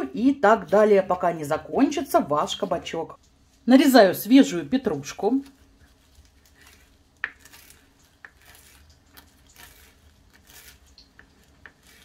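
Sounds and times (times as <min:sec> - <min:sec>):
knife slicing herbs: 0:04.9 - 0:12.0.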